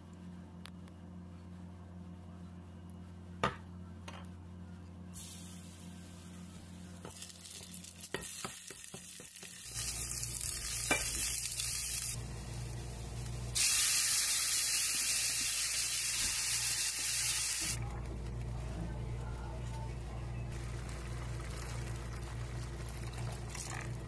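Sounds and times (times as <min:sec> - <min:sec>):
meat sizzling in hot oil: 0:07.1 - 0:12.5, 0:13.2 - 0:17.8.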